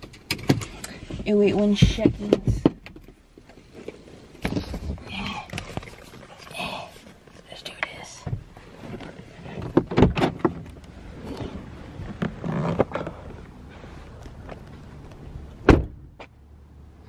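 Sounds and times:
car door shutting thud: 15.6s - 16.3s.

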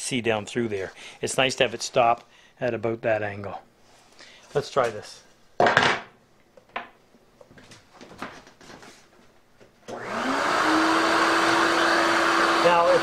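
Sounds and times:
electric router whine: 9.9s - 13.0s.

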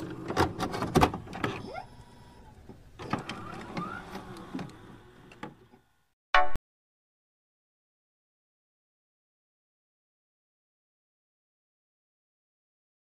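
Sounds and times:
sharp digital clicks and crackles: 6.4s - 6.6s.

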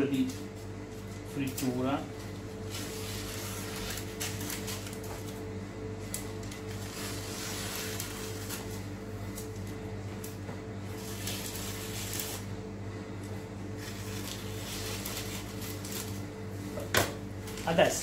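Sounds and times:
parchment paper rustling: 0.1s - 9.8s, 10.9s - 12.5s, 13.8s - 18.0s
scissors cutting paper: 2.6s - 5.4s, 6.1s - 9.7s, 11.0s - 12.5s, 13.8s - 16.2s.

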